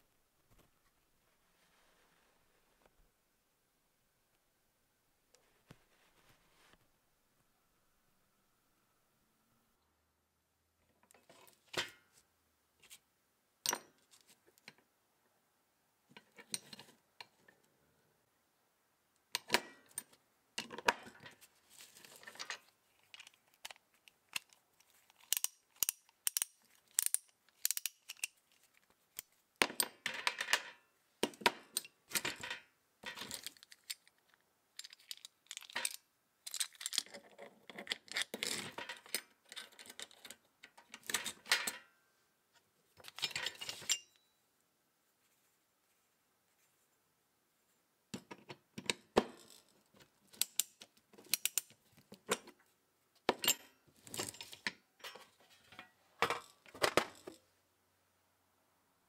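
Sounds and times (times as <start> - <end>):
metal tools clinking: 43.0 - 44.3.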